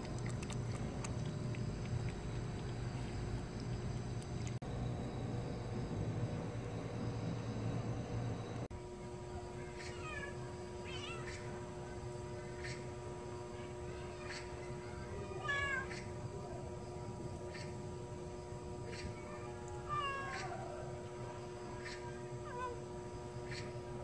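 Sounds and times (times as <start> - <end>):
cat meowing: 9.6 - 11.4, 19.1 - 20.8.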